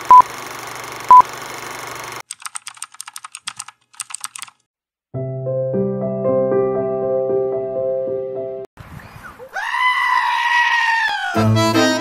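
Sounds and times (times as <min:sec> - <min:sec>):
laptop keyboard typing: 0:02.2 - 0:04.7
soft music: 0:05.1 - 0:08.7, 0:11.4 - 0:12.0.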